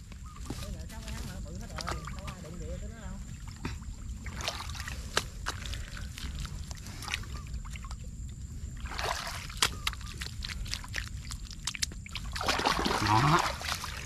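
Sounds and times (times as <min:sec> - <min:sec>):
water sloshing: 0:00.2 - 0:14.0
hands squelching wet mud: 0:03.3 - 0:14.0
water dripping: 0:08.9 - 0:14.0.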